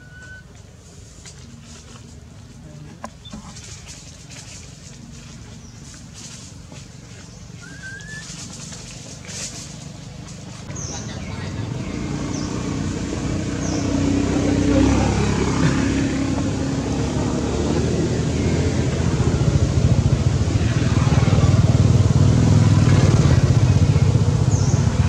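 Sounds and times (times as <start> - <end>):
vehicle engine rumbling: 0.0 - 25.0.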